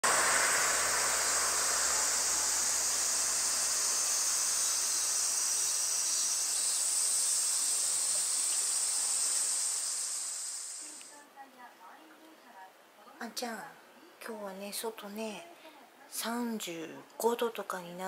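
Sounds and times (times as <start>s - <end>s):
cicadas buzzing: 0.0s - 11.1s.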